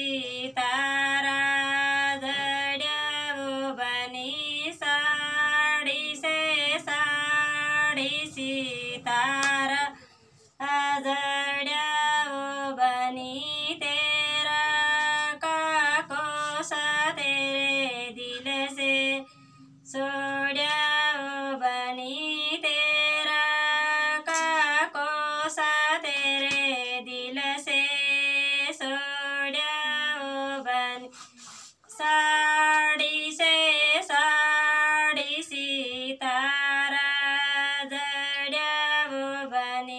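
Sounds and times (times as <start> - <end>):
woman singing a folk song: 0.0 - 39.9.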